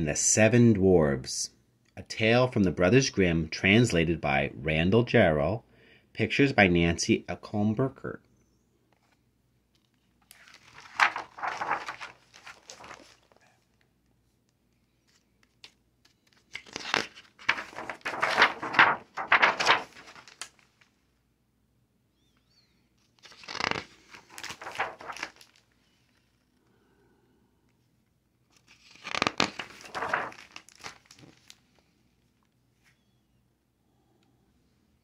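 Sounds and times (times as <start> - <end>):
book pages turning: 9.8 - 13.8, 14.8 - 20.9, 23.0 - 26.4, 28.5 - 31.9.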